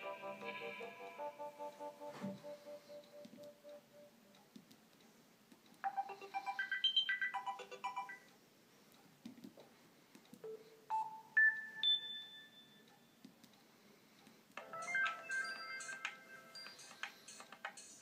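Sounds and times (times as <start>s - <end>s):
quick electronic melody: 0.0s - 4.1s.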